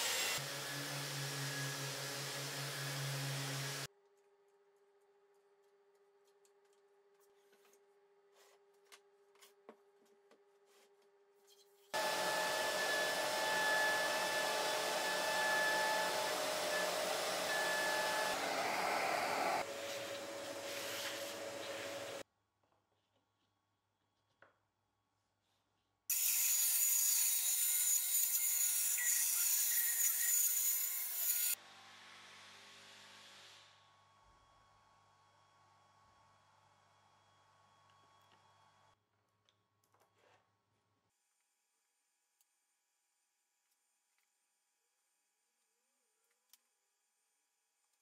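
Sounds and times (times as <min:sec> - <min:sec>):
saw blade cutting wood: 0:00.0 - 0:03.9, 0:11.9 - 0:22.2, 0:26.1 - 0:31.6
handheld router whining: 0:12.0 - 0:20.5.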